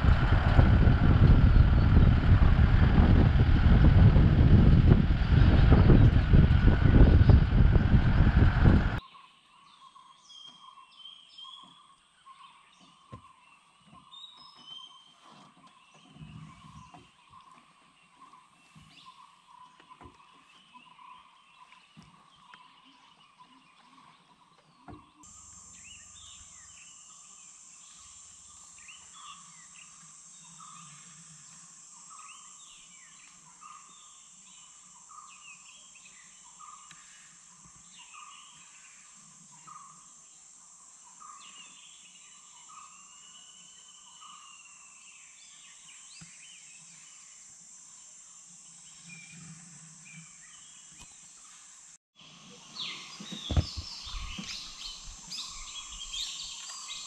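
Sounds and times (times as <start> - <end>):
steady high-pitched drone: 0.0 - 9.0
birds calling: 0.0 - 40.1, 40.9 - 47.0, 52.2 - 57.0.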